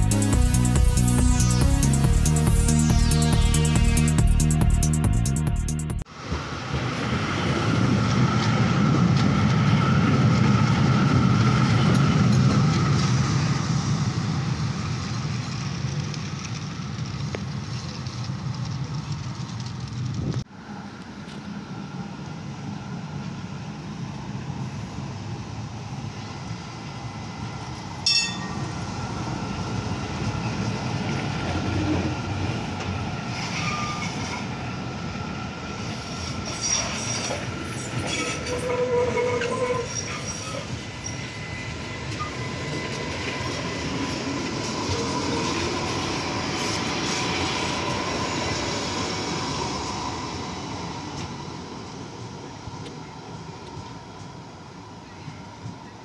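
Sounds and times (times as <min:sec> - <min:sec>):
train wheels rumbling on rail: 0:06.0 - 0:56.0
sharp ringing tone: 0:28.1 - 0:28.7
wheel squeal: 0:33.3 - 0:34.5, 0:35.8 - 0:41.5.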